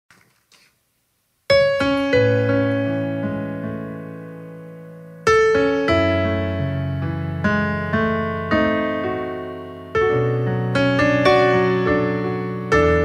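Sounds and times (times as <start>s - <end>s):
piano playing slow ballad: 1.5s - 13.0s.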